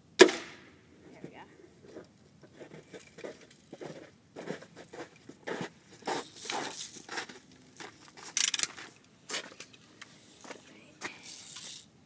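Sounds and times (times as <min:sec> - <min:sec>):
footsteps crunching through snow: 0:01.9 - 0:09.5.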